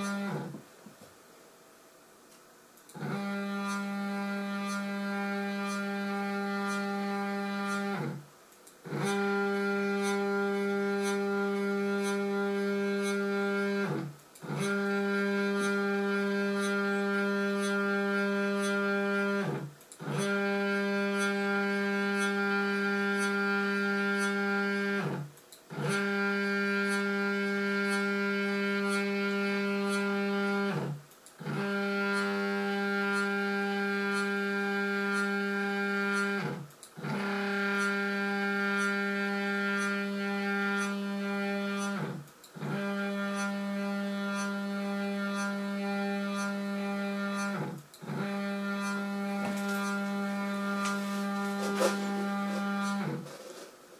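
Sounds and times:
stepper motors whining: 0:25.8 - 0:53.4.

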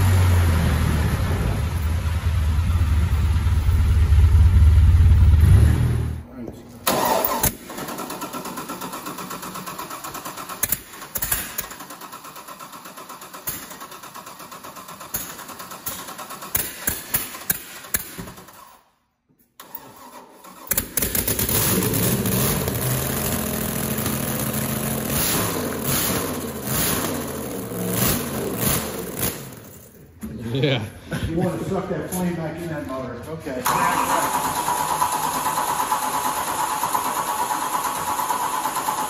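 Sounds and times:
engine running and revving: 0:00.0 - 0:06.2, 0:21.0 - 0:29.6
engine starter cranking: 0:06.8 - 0:18.8, 0:19.6 - 0:29.9, 0:33.6 - 0:39.0.

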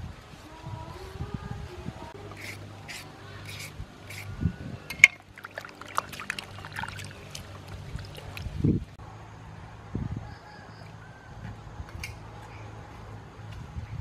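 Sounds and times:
water sloshing in metal pan: 0:04.9 - 0:08.6
water splashing and dripping: 0:04.9 - 0:08.9.

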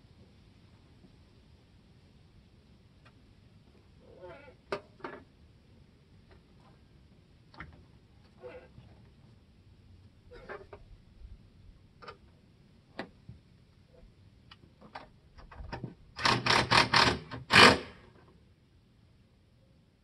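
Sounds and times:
louder tool strokes: 0:16.2 - 0:18.0.

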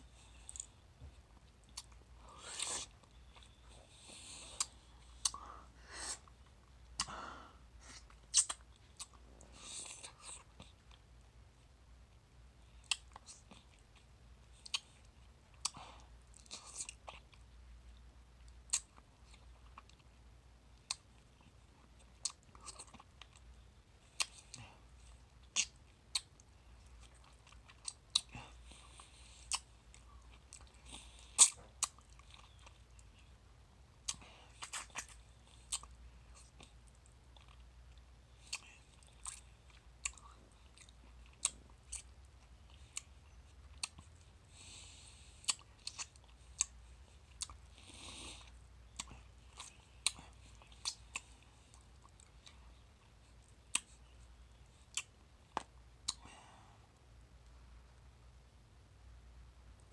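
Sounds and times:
mouth eating fruit wetly: 0:00.1 - 0:11.1, 0:20.7 - 0:57.0.

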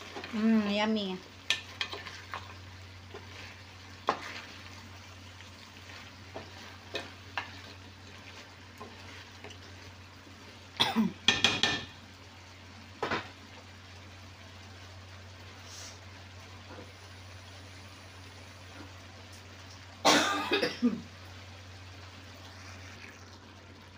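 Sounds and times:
spoon stirring in pan: 0:00.0 - 0:12.0
food sizzling faintly: 0:00.0 - 0:23.9.

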